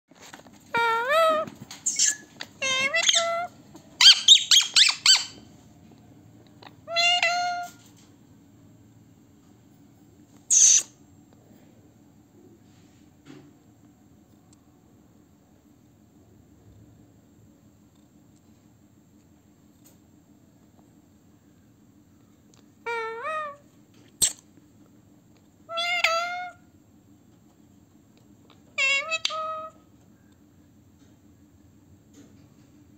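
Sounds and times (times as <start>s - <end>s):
parakeets squawking and chirping: 0.8s - 5.4s, 6.6s - 7.7s, 10.5s - 10.9s, 22.9s - 23.6s, 25.7s - 26.5s, 28.8s - 29.7s.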